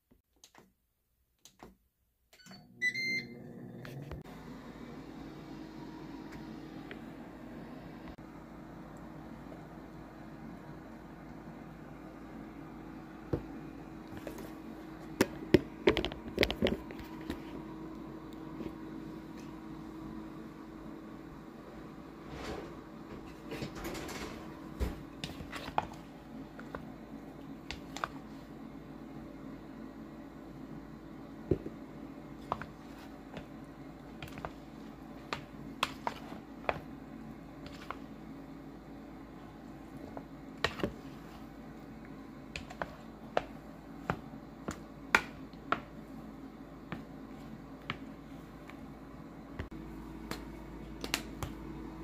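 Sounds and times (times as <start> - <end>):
faint steady hum: 2.3 - 52.0
wooden spoon stirring in a bowl: 25.0 - 28.6, 31.6 - 38.4, 39.2 - 48.8.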